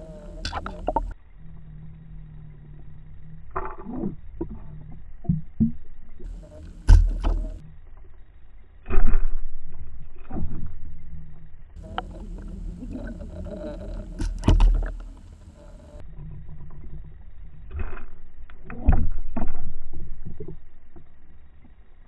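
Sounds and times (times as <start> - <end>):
low underwater rumble: 0.0 - 22.0
underwater knocks and thumps: 0.3 - 1.2, 3.6 - 7.6, 11.8 - 15.5, 18.7 - 21.1.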